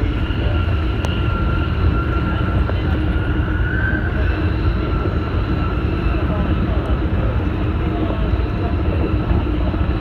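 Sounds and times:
train deep rumble: 0:00.0 - 0:10.0
train high whine: 0:00.0 - 0:10.0.

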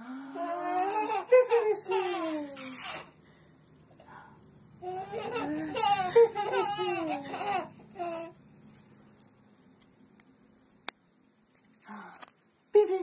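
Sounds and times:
baby laughing and babbling: 0:00.4 - 0:03.1, 0:04.8 - 0:08.4.

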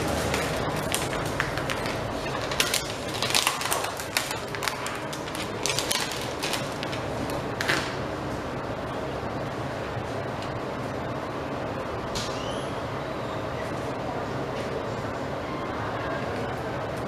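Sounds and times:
plastic bags crinkling: 0:00.0 - 0:07.9.

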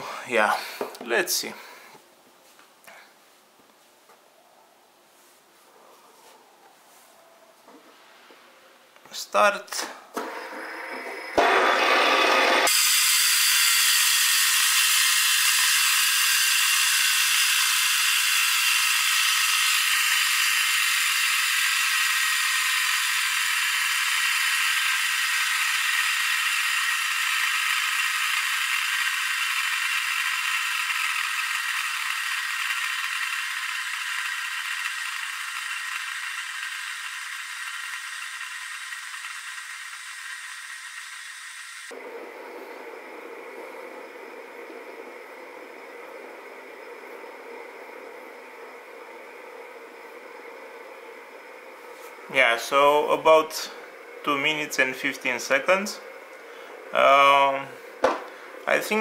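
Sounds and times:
fidget spinners whirring and rattling: 0:13.4 - 0:42.0.

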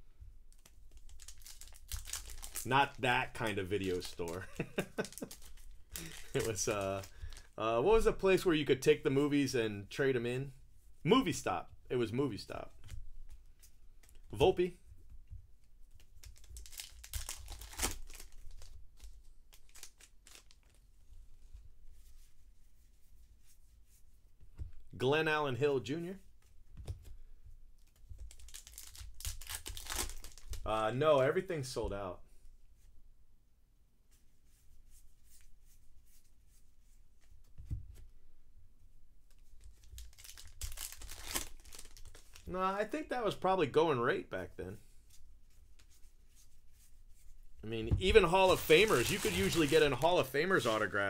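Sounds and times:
wrapper crinkling and tearing: 0:00.5 - 0:07.6, 0:16.0 - 0:20.8, 0:27.9 - 0:30.7, 0:39.3 - 0:42.5, 0:48.1 - 0:51.0.

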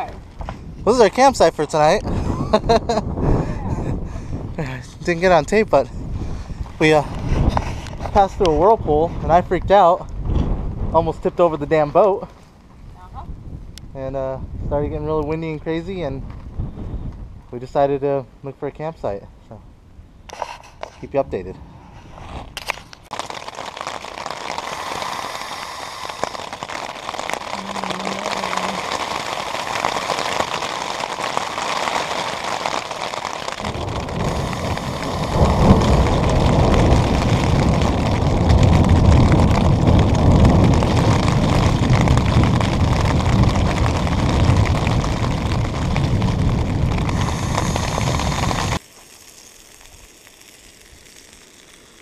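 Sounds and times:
rain and wind on tent fabric: 0:00.0 - 0:17.9, 0:20.3 - 0:52.0
deep heavy rumble: 0:33.5 - 0:48.8.

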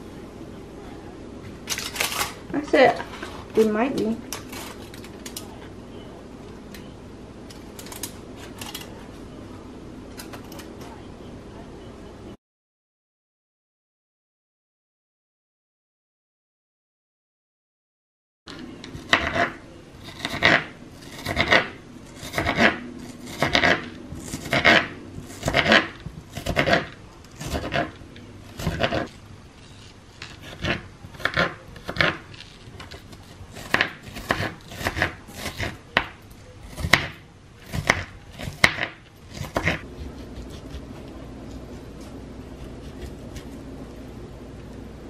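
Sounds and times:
knife chopping on plastic board: 0:20.2 - 0:28.0, 0:30.4 - 0:32.2, 0:32.8 - 0:40.9.

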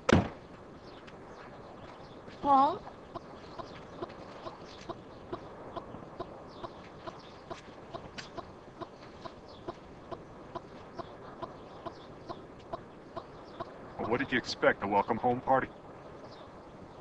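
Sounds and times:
high bird chirps: 0:01.7 - 0:14.2.

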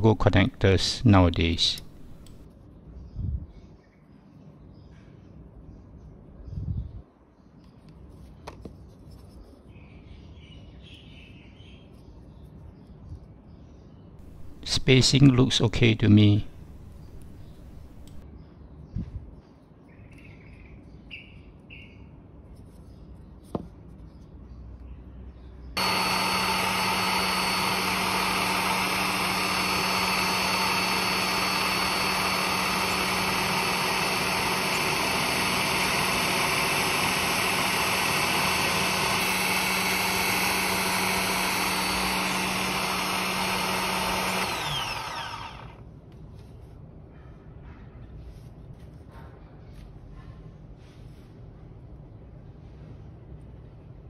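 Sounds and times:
drill press drilling wood: 0:01.7 - 0:02.4, 0:14.2 - 0:14.7, 0:16.5 - 0:18.2, 0:25.8 - 0:45.8.

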